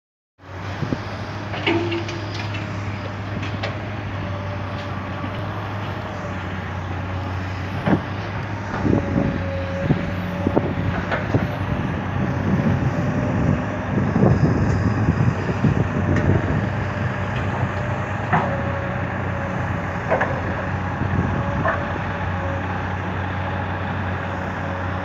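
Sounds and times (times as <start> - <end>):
diesel engines running: 0.4 - 25.0
metal clanks and thuds: 1.5 - 2.7.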